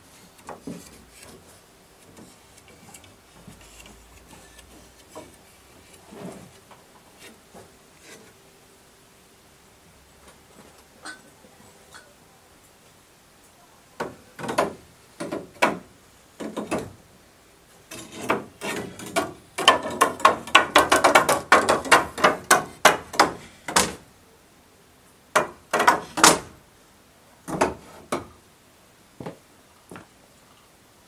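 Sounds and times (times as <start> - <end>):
sharp knocks: 17.9 - 24.0, 25.4 - 26.5.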